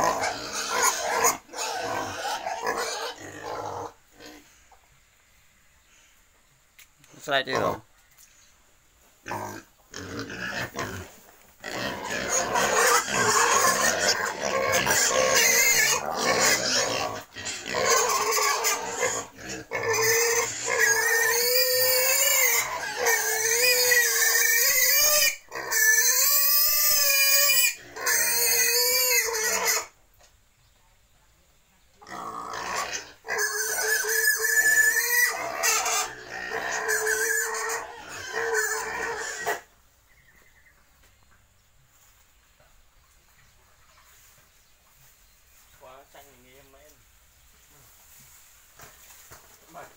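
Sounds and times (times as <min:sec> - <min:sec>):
pigs squealing: 0:00.0 - 0:04.4, 0:07.4 - 0:07.8, 0:09.2 - 0:30.0, 0:32.0 - 0:39.7.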